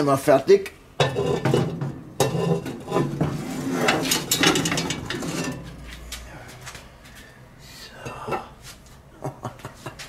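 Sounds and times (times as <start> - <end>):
iron lid clanks and scrapes: 1.0 - 5.9.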